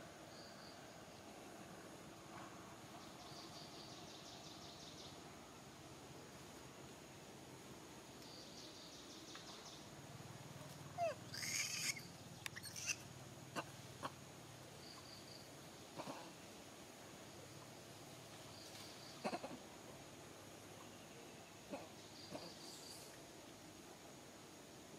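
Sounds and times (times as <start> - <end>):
faint outdoor background: 0.0 - 24.9
infant monkey squeaking: 11.0 - 13.0.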